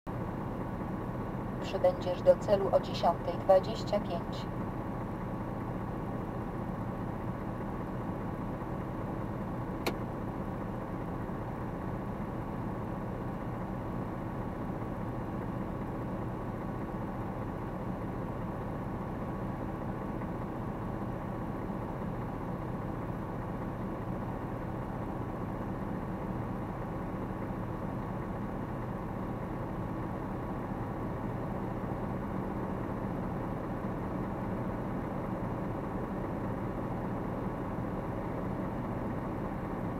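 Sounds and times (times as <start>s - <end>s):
engine idling heard from cab: 0.1s - 39.9s
sharp click: 9.8s - 10.0s.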